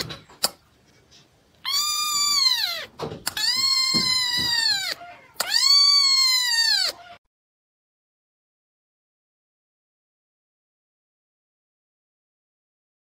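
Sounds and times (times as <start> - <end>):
kitten meowing: 1.6 - 7.2.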